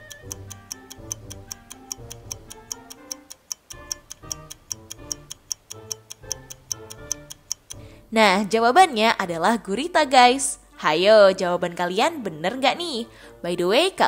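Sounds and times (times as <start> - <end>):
clock-like ticking: 0.0 - 8.0.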